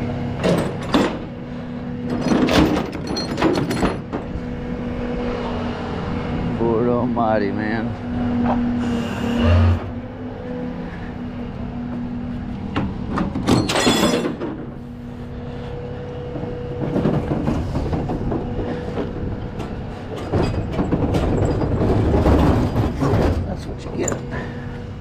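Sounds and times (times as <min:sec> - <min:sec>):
steady low hum: 0:00.0 - 0:13.7, 0:14.3 - 0:25.0
metal toolbox clanking on steel deck: 0:02.1 - 0:04.3
metal scraping: 0:08.3 - 0:10.2
metallic screech-scrape: 0:08.7 - 0:10.0.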